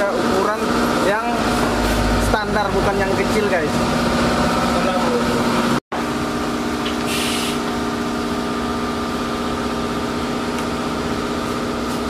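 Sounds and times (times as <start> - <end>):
brief hiss: 7.0 - 7.6.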